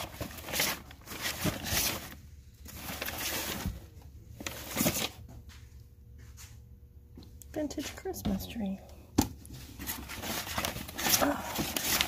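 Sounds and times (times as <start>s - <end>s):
papers and books rustling: 0.0s - 6.7s, 9.2s - 12.0s.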